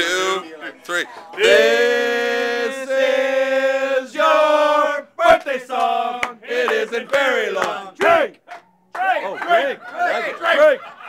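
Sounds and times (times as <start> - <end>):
men singing a cappella: 0.0 - 8.4.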